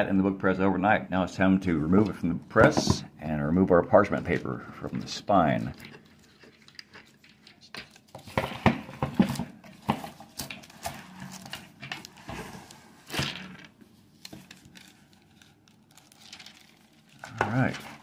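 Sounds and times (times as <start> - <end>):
paper and cloth rustling: 9.2 - 18.0.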